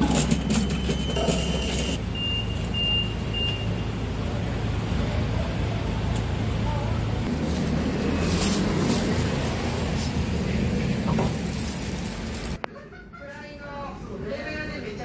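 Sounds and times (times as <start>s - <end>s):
city street traffic rumbling: 0.0s - 15.0s
short high electronic beeps: 0.4s - 3.9s.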